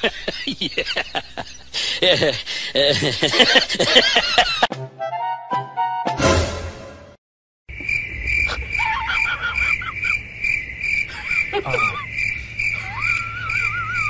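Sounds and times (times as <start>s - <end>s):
steady high pulsing chirping: 7.7s - 14.0s
wavering calls: 8.2s - 10.3s, 11.0s - 14.0s.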